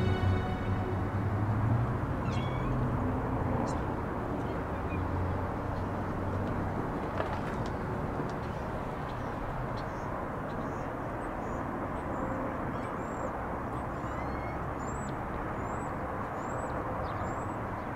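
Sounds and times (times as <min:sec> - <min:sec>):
faint high bird chirps: 0:02.2 - 0:02.8, 0:14.0 - 0:17.5.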